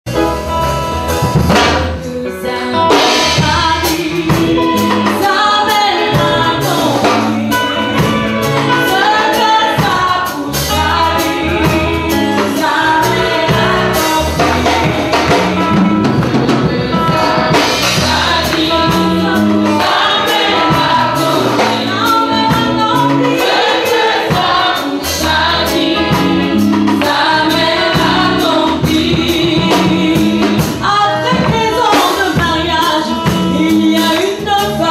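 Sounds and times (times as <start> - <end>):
woman singing lead: 1.9 - 34.9
gospel choir singing: 2.4 - 34.9
steady percussion beat: 2.9 - 34.9.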